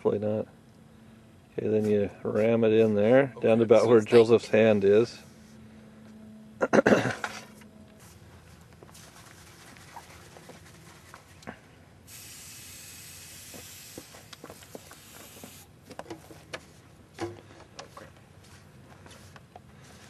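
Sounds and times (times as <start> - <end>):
aerosol can hissing: 12.1 - 15.6.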